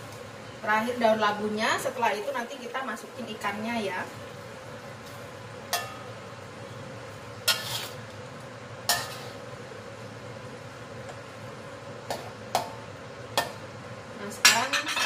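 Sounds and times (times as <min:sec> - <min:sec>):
low simmering hiss: 0:00.0 - 0:15.0
spatula clinking on pan: 0:05.7 - 0:06.1.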